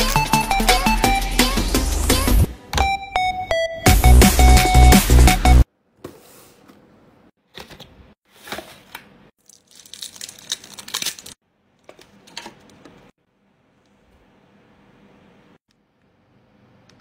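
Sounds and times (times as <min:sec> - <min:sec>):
plastic film crinkling and tearing: 0:09.4 - 0:11.4.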